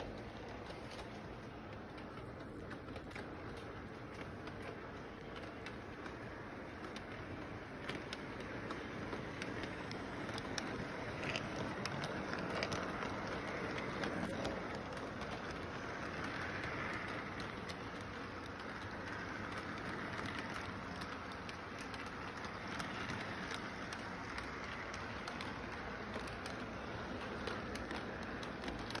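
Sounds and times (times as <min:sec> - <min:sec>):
model train rumbling: 0:00.0 - 0:29.0
wheels clicking over rail joints: 0:00.0 - 0:29.0.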